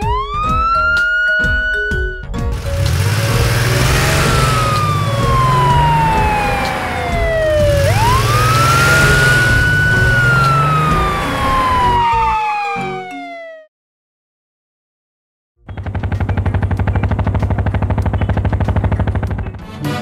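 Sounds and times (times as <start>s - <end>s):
police siren wailing: 0.0s - 13.7s.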